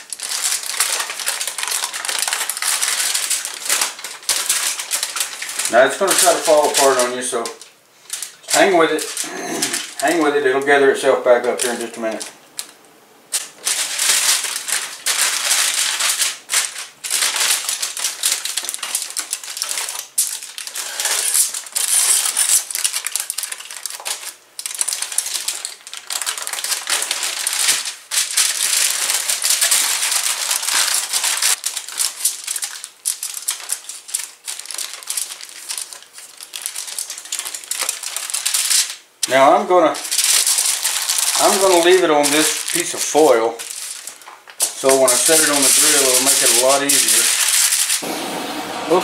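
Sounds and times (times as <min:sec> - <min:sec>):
aluminium foil crinkling: 0:00.0 - 0:48.0.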